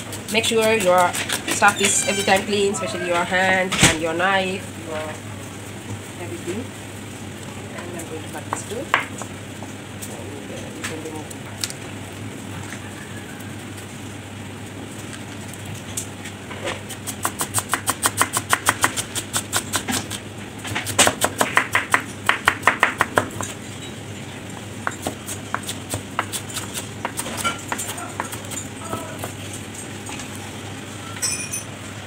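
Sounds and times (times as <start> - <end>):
knife chopping on plastic board: 20.7 - 23.5, 24.8 - 29.4.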